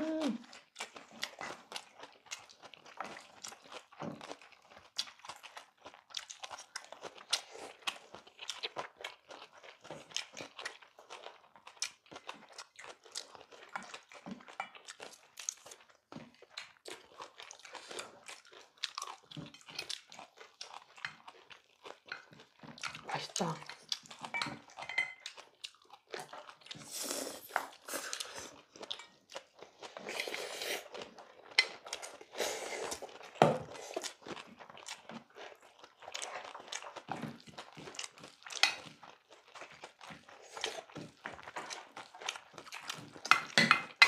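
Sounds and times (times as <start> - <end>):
people chewing food: 0.0 - 44.0.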